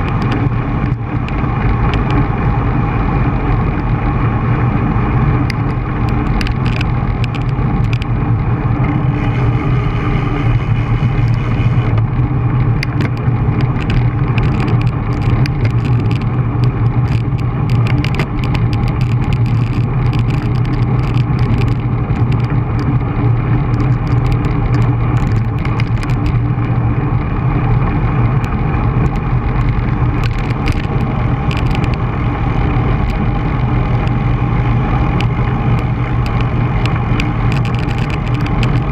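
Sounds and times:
road noise: 0.0s - 38.9s
wind rush: 0.0s - 38.9s
sharp rattling clicks: 5.4s - 8.2s, 12.6s - 26.8s, 28.3s - 34.3s, 35.0s - 38.9s.

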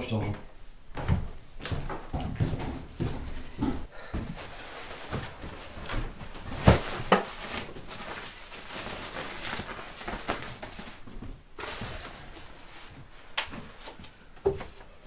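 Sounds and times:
backpack rustling: 4.2s - 13.8s.

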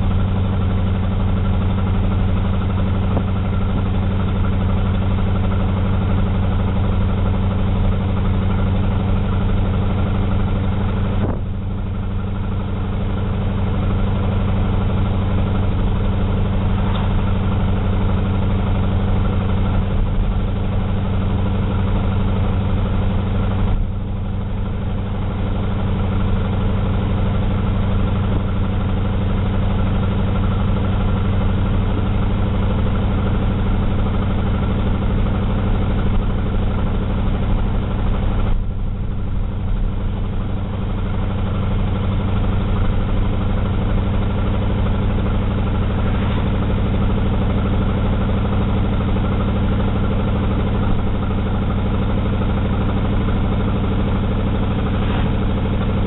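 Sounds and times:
car engine drone inside cabin: 0.0s - 56.0s
road noise: 0.0s - 56.0s.

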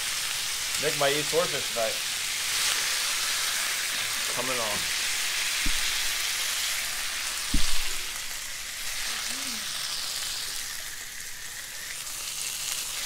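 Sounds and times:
fish sizzling in a hot pan: 0.0s - 13.0s
low knock: 5.6s - 6.1s, 7.5s - 8.1s.

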